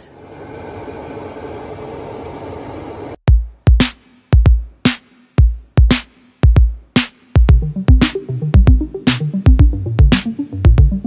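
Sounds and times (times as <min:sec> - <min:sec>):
electronic music with drum beat: 0:03.3 - 0:11.0.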